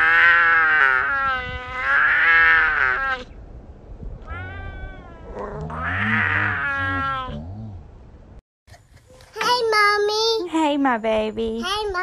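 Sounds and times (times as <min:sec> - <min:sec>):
cat meowing: 0:04.2 - 0:07.4.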